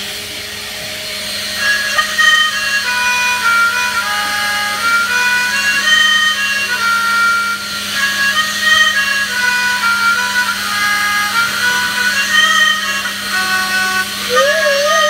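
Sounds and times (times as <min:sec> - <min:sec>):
steady low hum: 0:00.0 - 0:15.0
squeaky whistling air pump tune: 0:00.1 - 0:15.0.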